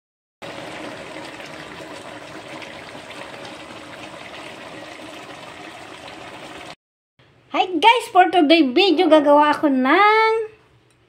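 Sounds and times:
stew bubbling in a pan: 0.4s - 6.8s.

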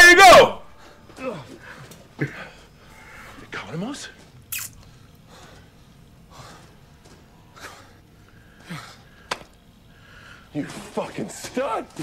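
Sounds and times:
man breathing through nose: 4.8s - 10.5s.

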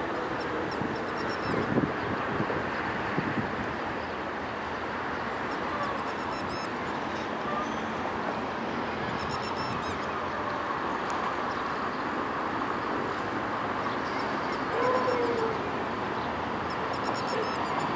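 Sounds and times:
steady background noise: 0.0s - 17.9s
lapwing alarm calls: 5.5s - 7.9s, 9.2s - 10.1s, 16.7s - 17.9s.

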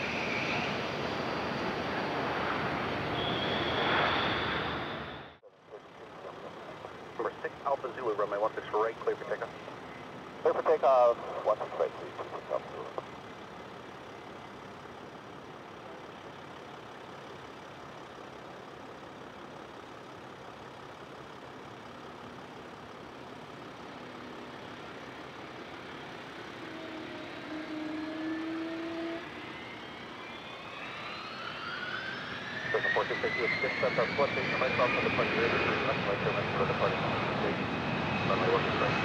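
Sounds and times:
jet engines rushing: 0.0s - 5.4s, 6.0s - 13.1s, 23.8s - 39.0s
rising engine whine: 0.0s - 39.0s.

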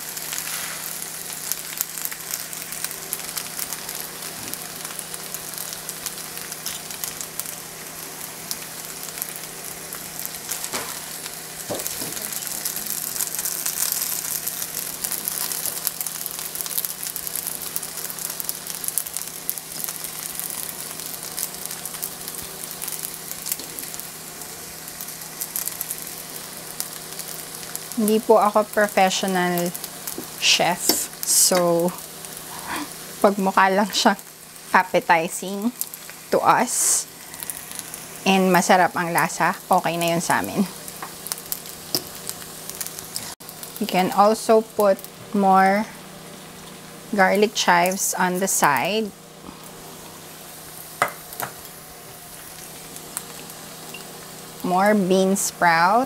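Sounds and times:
noodles sizzling in a pan: 0.0s - 56.0s.

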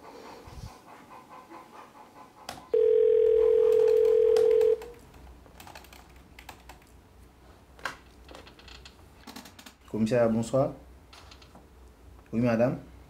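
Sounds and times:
telephone ringback tone: 2.7s - 4.9s
computer keyboard tapping: 3.7s - 6.9s.

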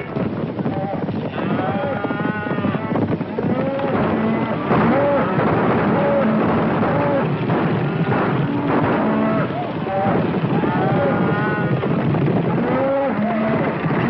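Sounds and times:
rumble of cattle hooves: 0.0s - 14.0s
cattle bellowing: 0.7s - 14.0s
riders shouting: 3.4s - 14.0s.

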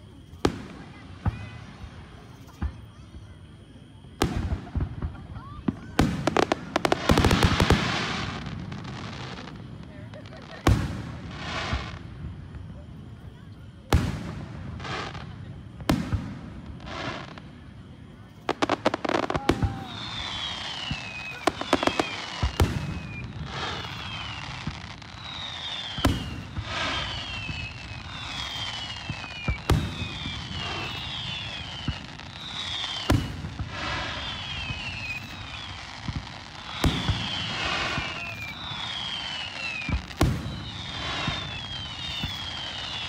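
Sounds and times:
firework shells booming: 18.5s - 43.0s
high falling whistles: 18.5s - 43.0s.

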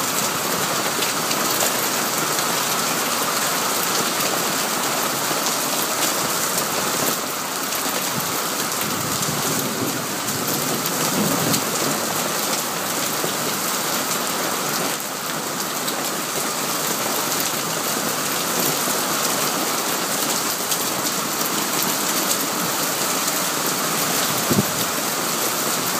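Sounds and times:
hail and heavy rain on paving: 0.0s - 25.9s.

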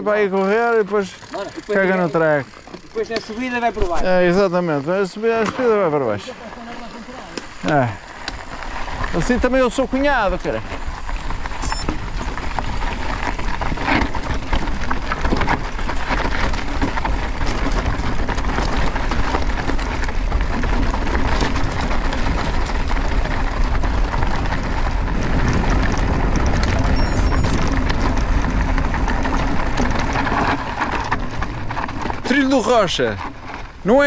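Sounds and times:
bike tyre noise: 0.0s - 34.0s
bike knocks and rattles: 0.4s - 34.0s
wind on microphone: 22.4s - 30.5s.

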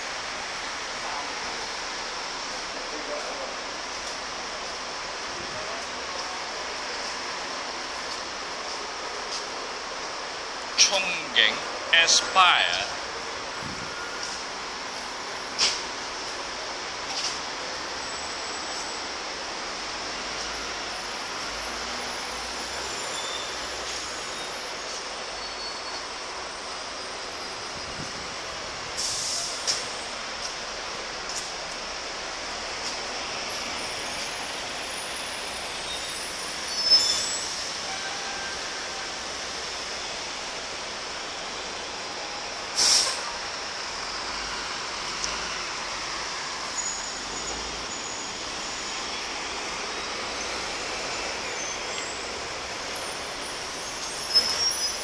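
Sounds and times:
road traffic rushing: 0.0s - 55.0s
short hiss: 29.0s - 29.8s, 42.7s - 43.3s.

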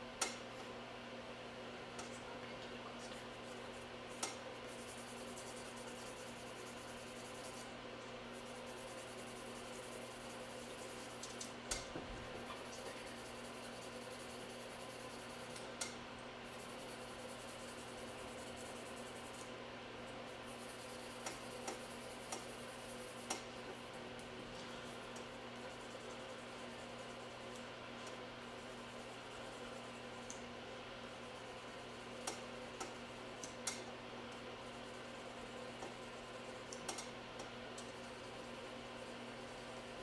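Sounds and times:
steady low hum: 0.0s - 40.0s
nail file scratching fingernails: 3.3s - 7.7s, 16.5s - 19.5s, 20.4s - 23.4s.

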